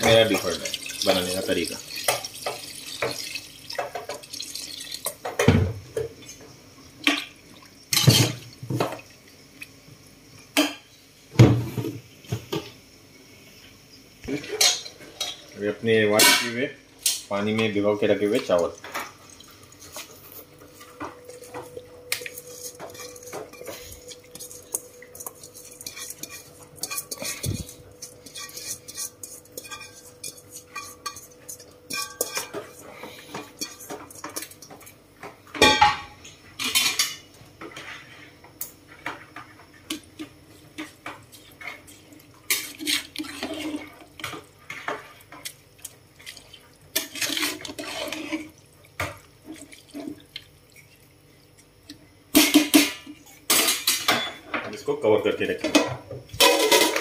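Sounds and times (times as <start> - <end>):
metal spatula clinking: 22.1 - 32.8
metal bowl scraping cooking pot: 22.3 - 34.5, 42.5 - 45.0, 47.0 - 48.5.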